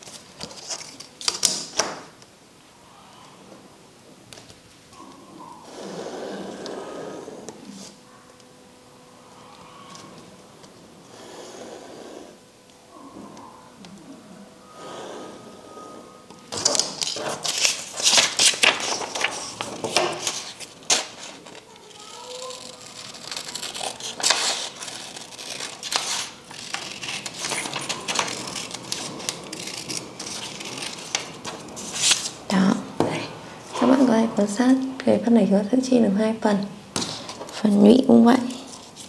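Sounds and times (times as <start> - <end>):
paper rustling and crinkling: 0.0 - 1.6, 16.6 - 32.4.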